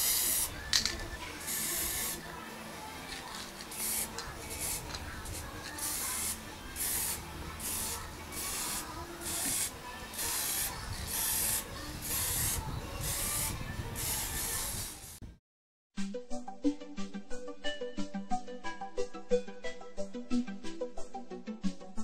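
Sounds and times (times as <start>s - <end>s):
aerosol spray can hissing: 0.0s - 2.3s, 3.2s - 15.2s.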